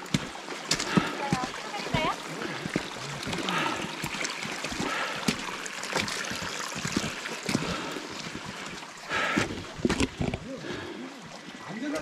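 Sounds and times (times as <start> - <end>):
footsteps on stony path: 0.0 - 11.0.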